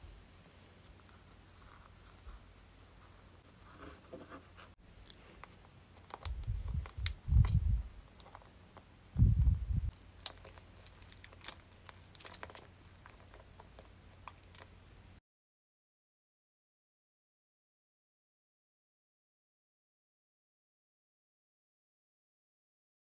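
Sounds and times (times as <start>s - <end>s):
dull low thumps: 9.2s - 9.9s
sticky tape crackling: 9.9s - 14.8s.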